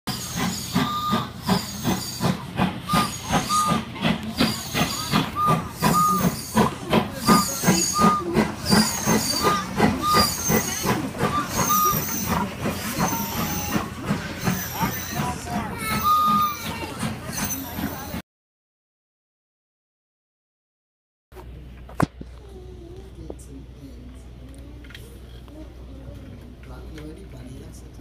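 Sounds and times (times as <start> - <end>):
steam hissing: 0.1 - 18.2
steam locomotive chuffing: 0.1 - 18.2.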